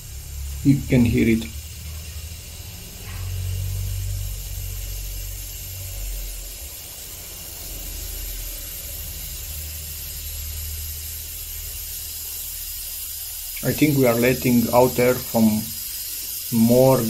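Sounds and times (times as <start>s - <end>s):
air hissing from valve: 0.0s - 17.0s.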